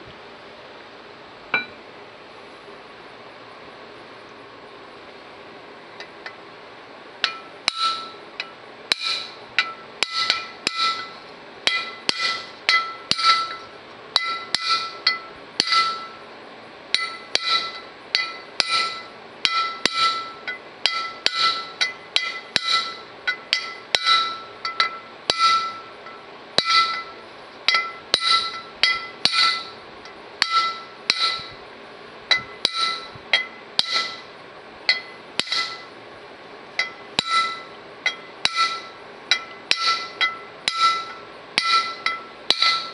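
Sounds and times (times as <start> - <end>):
hammer tapping metal punch: 1.5 - 1.8, 7.2 - 16.2, 16.9 - 31.6, 32.3 - 36.0, 36.8 - 42.9.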